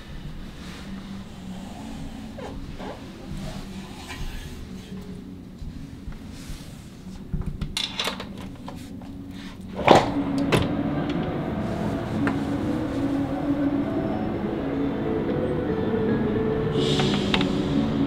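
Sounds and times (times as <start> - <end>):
ambient music sustained tones: 0.0 - 18.0.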